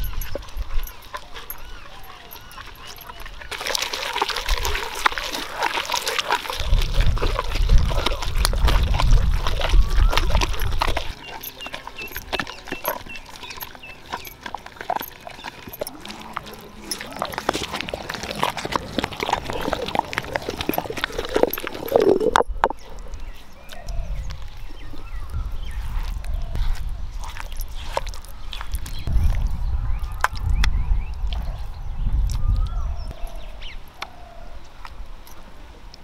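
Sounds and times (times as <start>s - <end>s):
stone pestle squelching paste: 0.0s - 22.8s.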